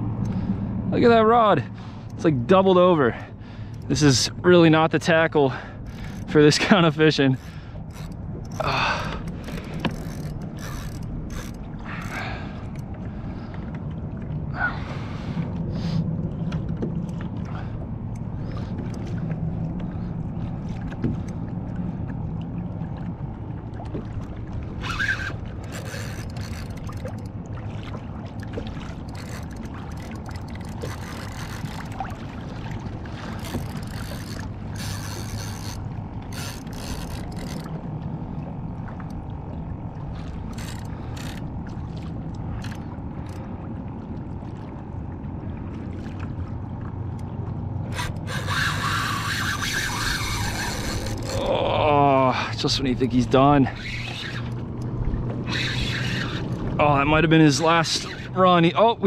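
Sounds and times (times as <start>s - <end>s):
steady low rumble: 0.0s - 48.0s, 49.9s - 59.0s
water lapping against hull: 0.0s - 59.0s.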